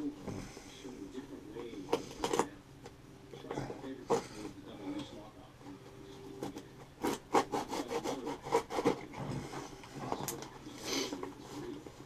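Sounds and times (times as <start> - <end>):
knife sawing through cardboard: 7.0 - 10.2.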